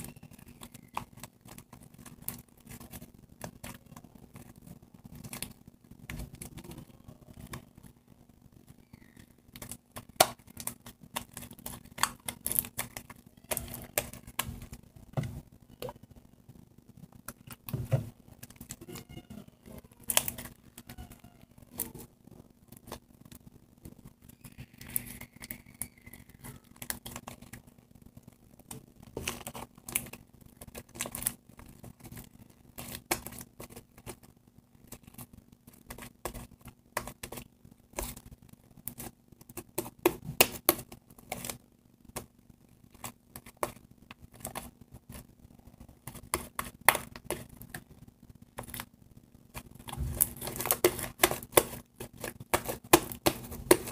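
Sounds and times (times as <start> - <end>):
slime clicking and crackling: 0.0 - 14.9, 15.7 - 53.9.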